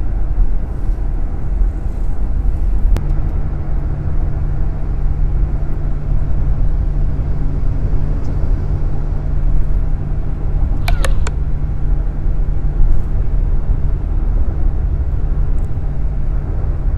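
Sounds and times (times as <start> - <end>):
car cabin road and engine rumble: 0.0 - 16.9
quick sharp clicks: 10.7 - 11.4.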